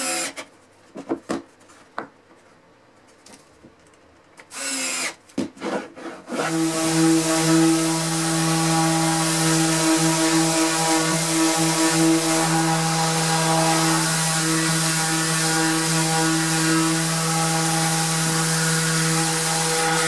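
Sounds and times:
orbital sander humming: 0:06.4 - 0:20.0.

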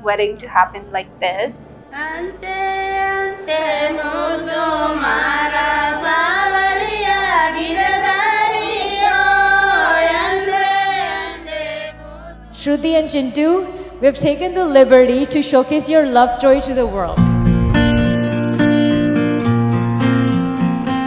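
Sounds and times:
low steady accompaniment: 0:00.0 - 0:21.0
woman singing: 0:11.9 - 0:17.3.

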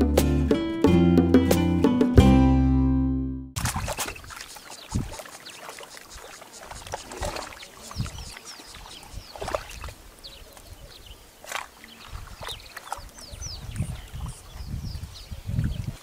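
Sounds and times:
splashing in muddy water: 0:03.6 - 0:14.6.

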